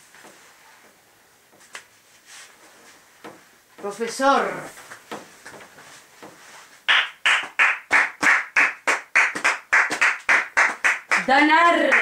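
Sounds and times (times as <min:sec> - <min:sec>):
quiet shuffling: 0:00.0 - 0:06.8
rhythmic hand clapping: 0:06.9 - 0:12.0.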